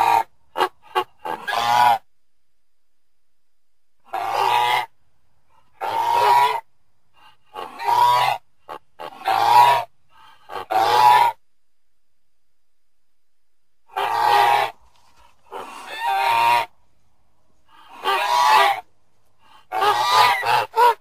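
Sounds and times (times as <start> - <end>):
goose honking: 0.0 - 2.0, 4.1 - 4.9, 5.7 - 11.4, 13.9 - 16.7, 17.7 - 21.0.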